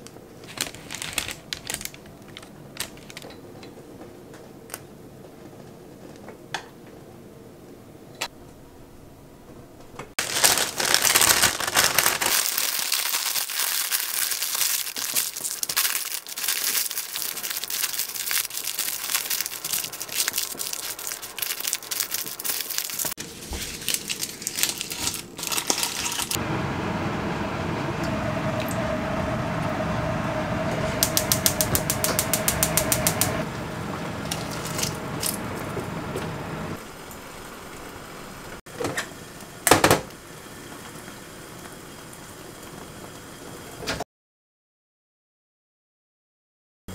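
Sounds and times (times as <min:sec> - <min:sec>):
parchment paper crinkling: 0:00.3 - 0:03.3, 0:10.2 - 0:26.4, 0:34.2 - 0:35.8
faint hum: 0:16.4 - 0:43.7.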